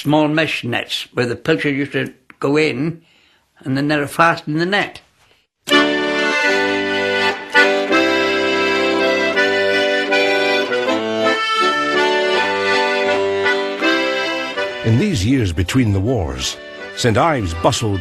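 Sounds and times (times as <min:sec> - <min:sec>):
accordion music: 0:05.6 - 0:18.0.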